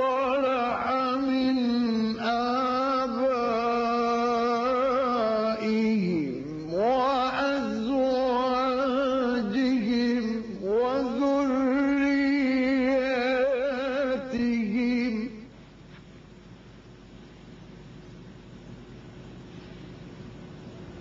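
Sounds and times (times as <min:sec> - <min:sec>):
man chanting recitation: 0:00.0 - 0:15.5
faint steady hiss: 0:00.0 - 0:21.0.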